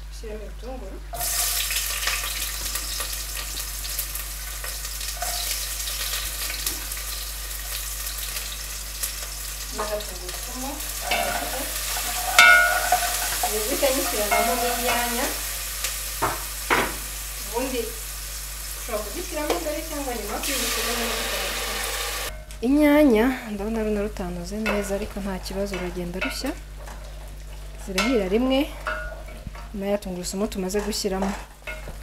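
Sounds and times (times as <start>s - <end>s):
onions sizzling in a pot: 0.6s - 32.0s
wooden spoon scraping a pot: 11.0s - 15.0s.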